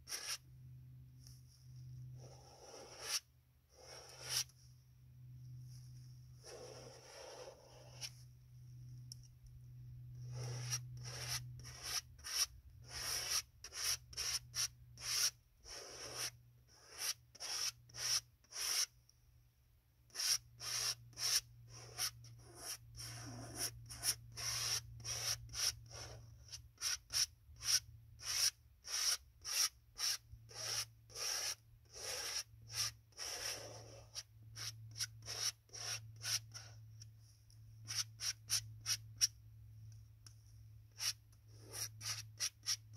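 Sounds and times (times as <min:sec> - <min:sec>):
paint scraping on canvas: 0:00.0 - 0:00.4, 0:01.2 - 0:04.6, 0:05.5 - 0:08.3, 0:10.2 - 0:18.9, 0:20.2 - 0:39.3.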